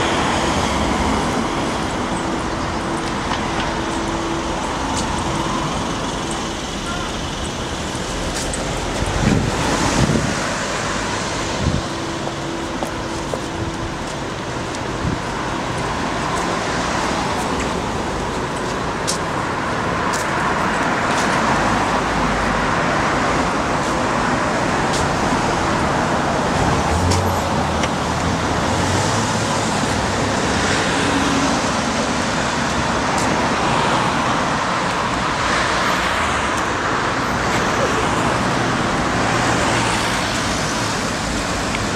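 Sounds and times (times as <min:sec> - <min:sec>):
cars passing on road: 0:00.0 - 0:41.9.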